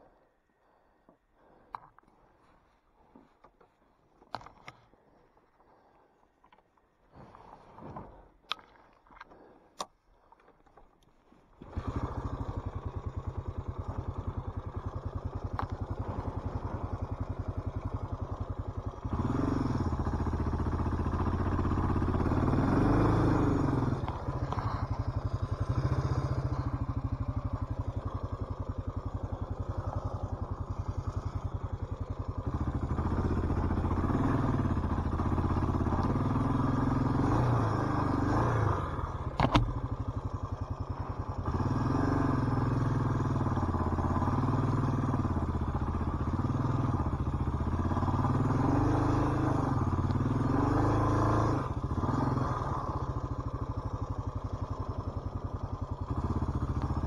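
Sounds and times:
motorcycle engine starting and revving: 11.4 - 57.0.

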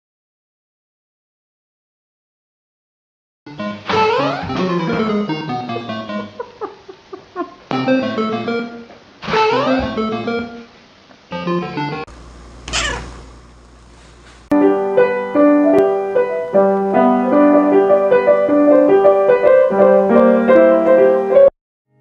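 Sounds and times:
piano melody over low chords: 14.5 - 21.5.

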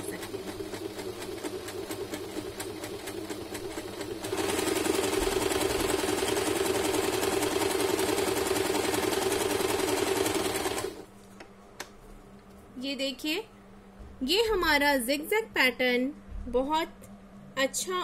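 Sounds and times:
electric sewing machine running: 0.0 - 11.1.

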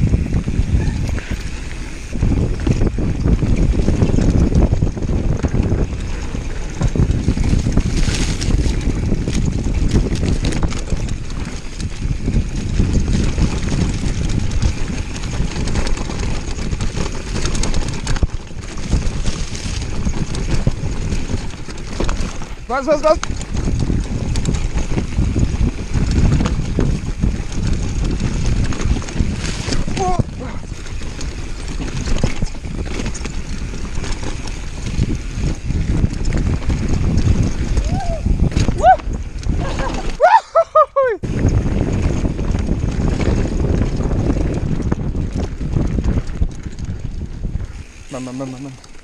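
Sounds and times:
bike rattling and knocking: 0.0 - 49.0
tyres rolling on dirt: 0.0 - 49.0
wind on microphone: 0.0 - 49.0.

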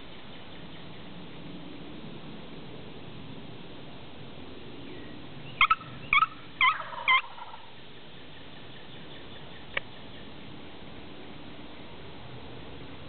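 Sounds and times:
turkey yelping: 5.6 - 7.7.

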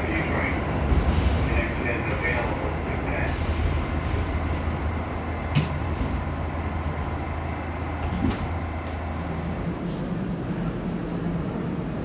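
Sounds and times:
subway train wheels rumbling: 0.0 - 12.0
faint high whine: 1.6 - 9.6.

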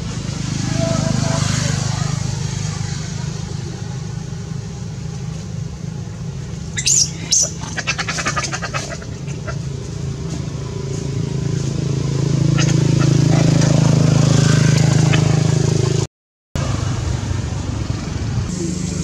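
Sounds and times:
monkey high-pitched squeaks: 6.8 - 9.6, 12.6 - 13.7.

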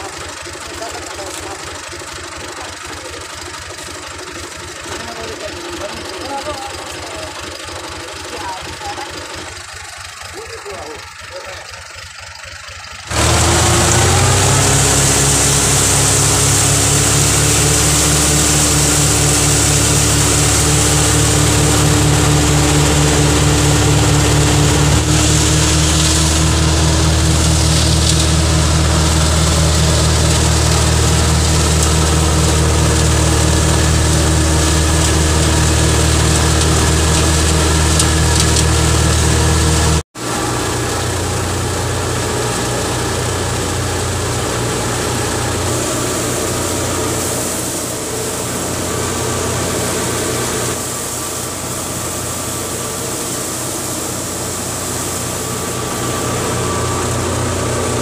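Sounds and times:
tractor diesel engine driving thresher: 0.0 - 58.0.

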